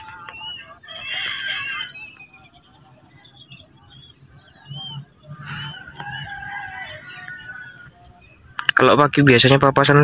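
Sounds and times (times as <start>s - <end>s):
high bird pipping: 0.0s - 2.9s
birds chirping: 0.0s - 10.0s
rooster crowing: 0.7s - 2.0s, 5.3s - 8.1s.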